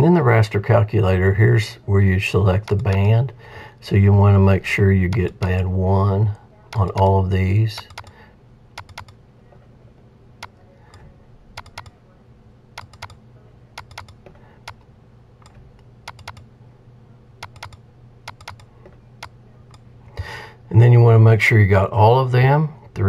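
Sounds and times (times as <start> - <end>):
faint low hum: 0.0 - 23.0
computer mouse clicking: 7.8 - 8.2, 8.8 - 9.2, 10.4 - 12.0, 12.8 - 13.2, 13.8 - 16.4, 17.4 - 19.8.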